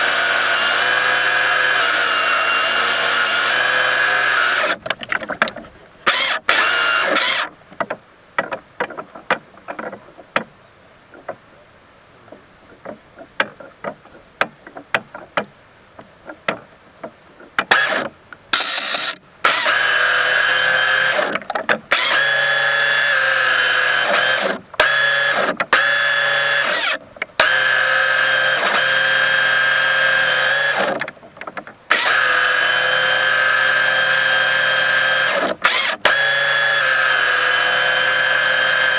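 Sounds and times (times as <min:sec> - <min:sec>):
small boat motor whine: 0:00.0 - 0:04.8, 0:06.1 - 0:07.5, 0:22.0 - 0:31.0, 0:31.9 - 0:38.9.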